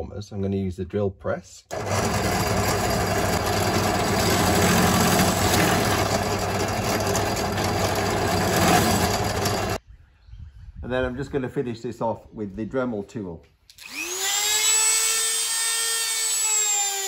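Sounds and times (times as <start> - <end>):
drill press boring into wood: 1.7 - 9.8.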